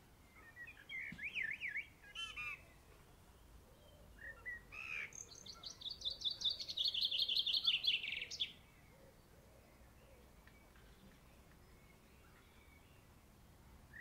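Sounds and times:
small bird singing: 0:00.2 - 0:14.0.

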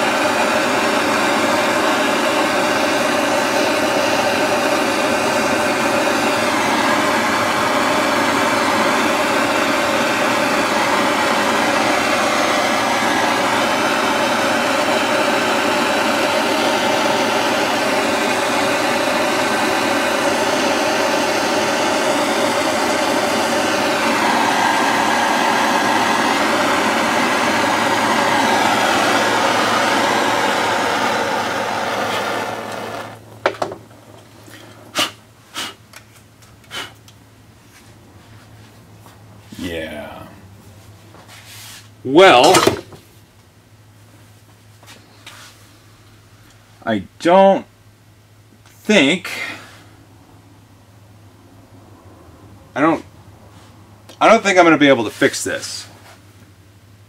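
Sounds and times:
blow torch burning: 0:00.0 - 0:35.8.

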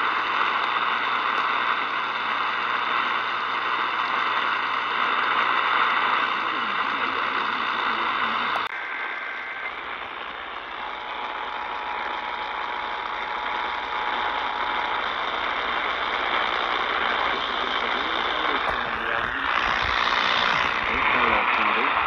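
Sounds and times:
radio hiss and static: 0:00.0 - 0:22.0.

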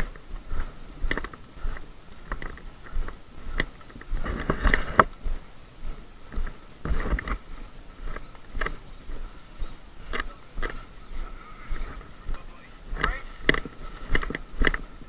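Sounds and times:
footsteps on woodland floor: 0:00.0 - 0:15.0
leaves and brush rustling: 0:00.0 - 0:15.0.

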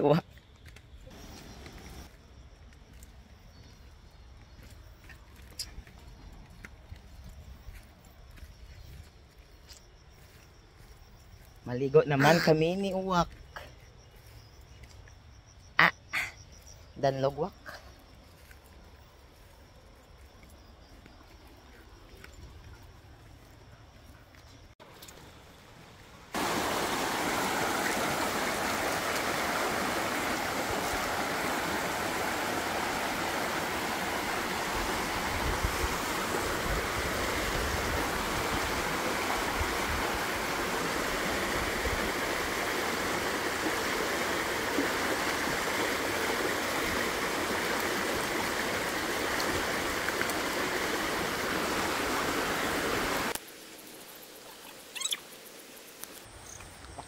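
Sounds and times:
creek running over stones: 0:00.0 - 0:10.9, 0:17.4 - 0:57.0
feet wading through water: 0:26.3 - 0:53.3.

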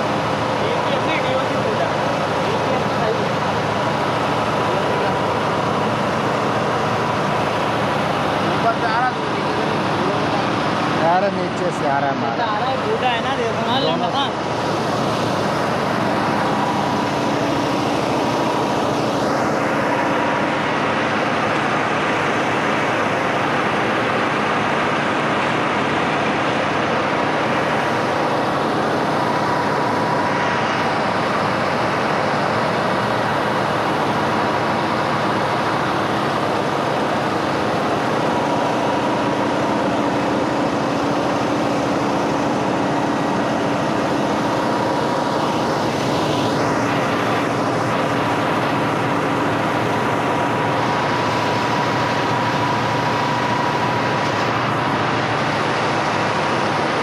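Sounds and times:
truck diesel engine running: 0:00.0 - 0:57.0.

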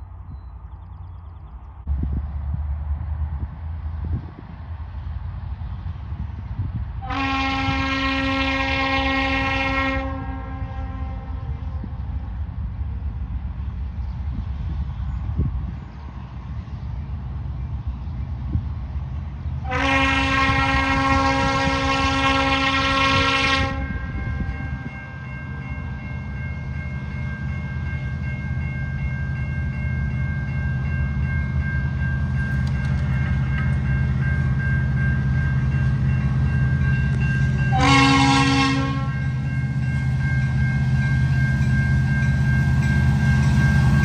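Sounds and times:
freight train rumbling past: 0:00.0 - 0:44.0
locomotive air horn: 0:07.0 - 0:11.9, 0:19.6 - 0:24.8, 0:37.7 - 0:39.4.

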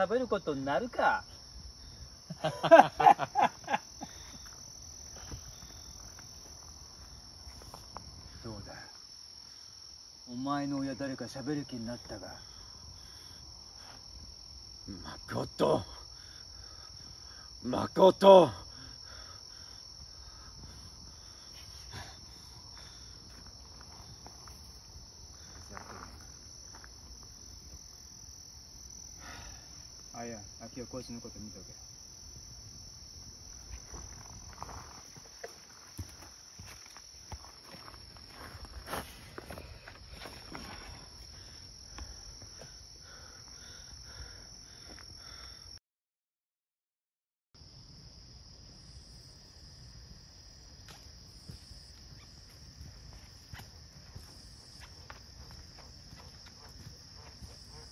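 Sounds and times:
shrill insect chorus: 0:00.0 - 0:45.8, 0:47.6 - 0:57.9.

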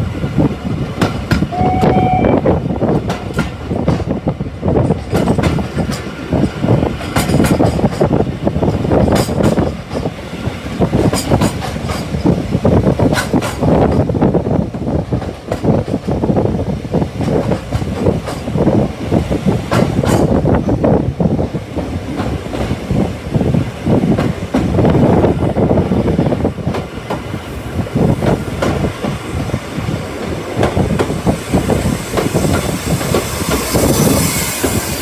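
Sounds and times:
train carriage rumbling: 0:00.0 - 0:35.0
wheels clacking over rail joints: 0:02.9 - 0:16.4, 0:17.1 - 0:20.9, 0:24.1 - 0:35.0.

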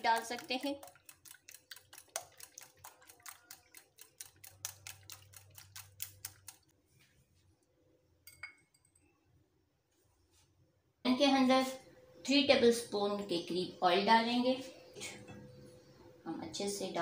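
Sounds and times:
whisk ticking against glass bowl: 0:00.0 - 0:06.7.

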